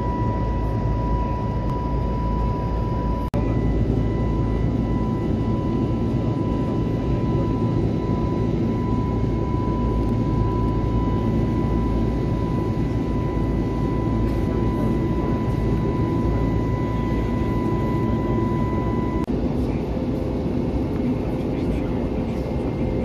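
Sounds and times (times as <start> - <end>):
low steady tone: 0.0 - 19.3
high whine: 0.0 - 19.8
airplane cabin engine rush: 0.0 - 23.0.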